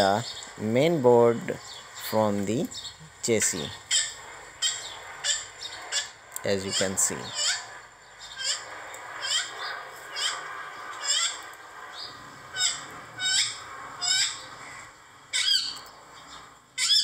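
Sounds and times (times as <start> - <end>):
bird shrill downward calls: 3.5 - 17.0.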